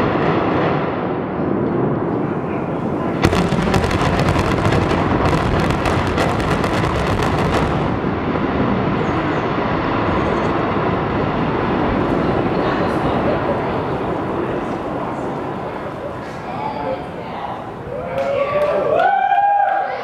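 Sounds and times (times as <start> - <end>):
demolition blasts: 0.0 - 17.8
loud steady rumbling: 0.0 - 19.7.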